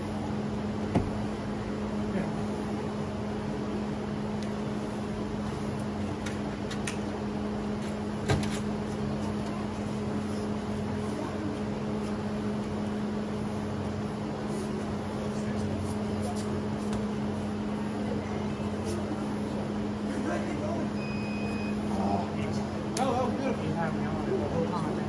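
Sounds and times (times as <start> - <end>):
steady machine hum: 0.0 - 25.0
thump: 0.9 - 1.2.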